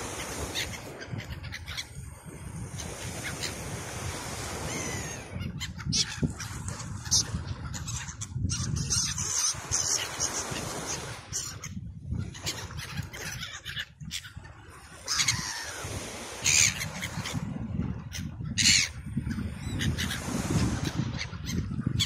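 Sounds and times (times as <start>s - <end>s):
gulls calling: 0.0s - 2.0s, 4.5s - 17.4s, 18.0s - 22.0s
wind rumble on microphone: 0.0s - 22.0s.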